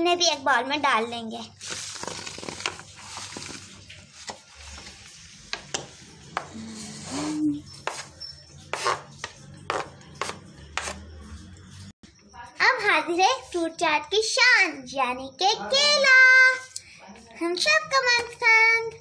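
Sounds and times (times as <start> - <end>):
knife scraping cutting board: 6.3 - 11.3.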